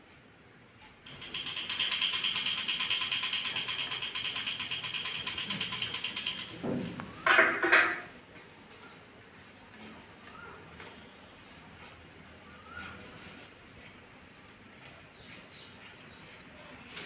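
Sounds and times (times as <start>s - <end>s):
hand bell ringing rapidly: 1.1s - 7.3s.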